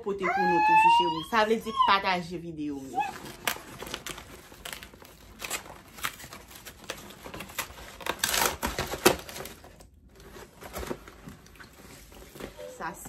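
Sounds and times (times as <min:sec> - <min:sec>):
cardboard tearing and scraping: 0:02.9 - 0:12.8
cardboard box being opened: 0:03.1 - 0:12.8.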